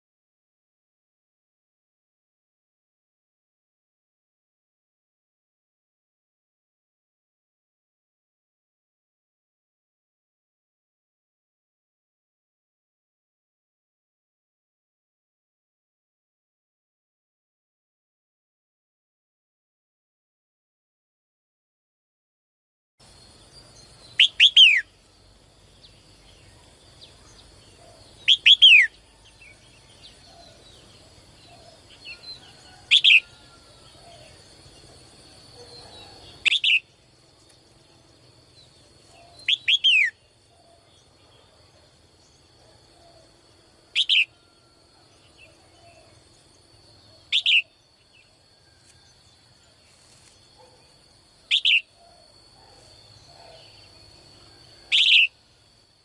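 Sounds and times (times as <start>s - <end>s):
bird calling: 24.0s - 25.0s, 27.1s - 34.4s, 35.6s - 36.9s, 39.0s - 40.9s, 43.9s - 44.5s, 47.1s - 47.8s, 50.6s - 55.4s.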